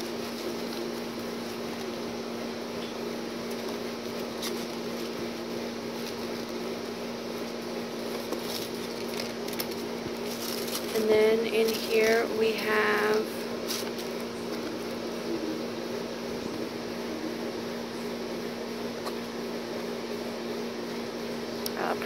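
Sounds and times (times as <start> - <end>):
paper pages rustling: 0.0 - 2.0, 3.4 - 15.0
fan hum: 0.0 - 22.0.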